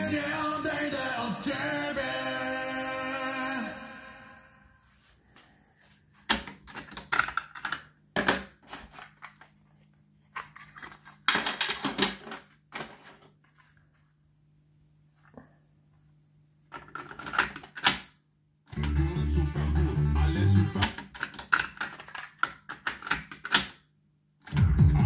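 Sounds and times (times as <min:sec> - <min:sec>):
cassette being handled: 0:06.2 - 0:14.0, 0:20.8 - 0:23.7.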